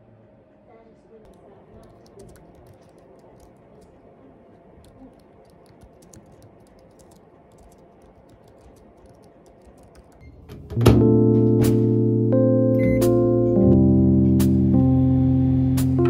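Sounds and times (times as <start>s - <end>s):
soft keyboard key clicks: 1.3s - 4.0s, 4.8s - 10.2s.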